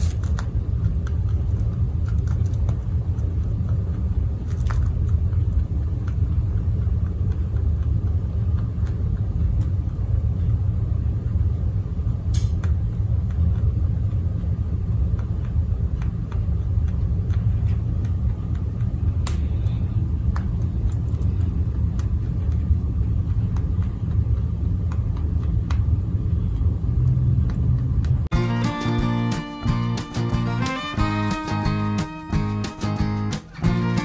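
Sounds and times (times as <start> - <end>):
rabbit chewing hay: 0.0 - 30.8
steady low rumble: 0.0 - 34.0
plucked string music: 28.3 - 34.0.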